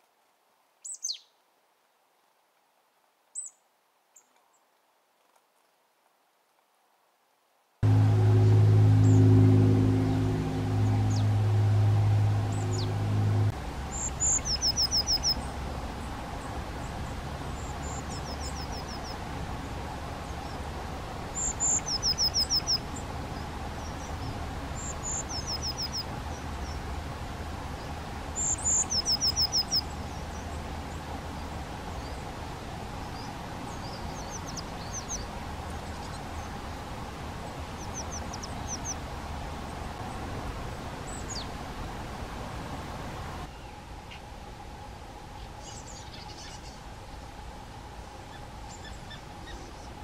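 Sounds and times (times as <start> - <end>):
bird singing high trill: 7.8 - 15.4, 21.4 - 22.8, 28.4 - 29.9
low background rumble: 7.8 - 50.0.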